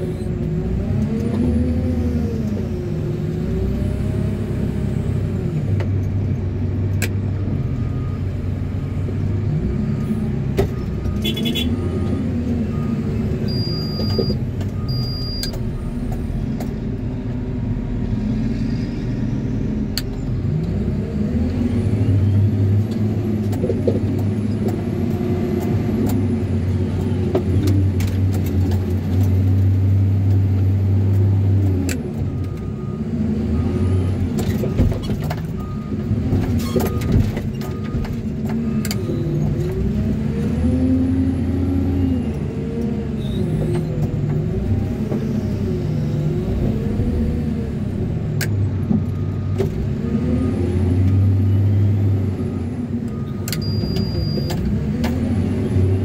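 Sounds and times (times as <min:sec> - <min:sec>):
wheel loader diesel engine revving: 0:00.0 - 0:56.0
backup alarm beeping: 0:12.8 - 0:16.0, 0:53.2 - 0:54.5.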